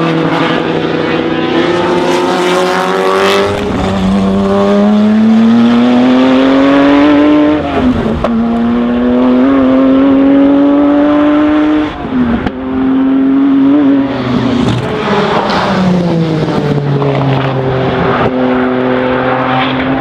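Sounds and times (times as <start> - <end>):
car engine accelerating: 0.0 - 20.0.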